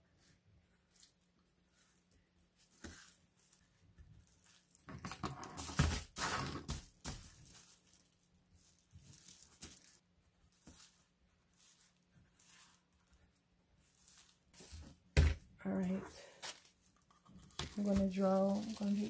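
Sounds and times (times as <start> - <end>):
tissue paper rustling: 0.1 - 4.8, 5.6 - 15.1, 15.7 - 19.0.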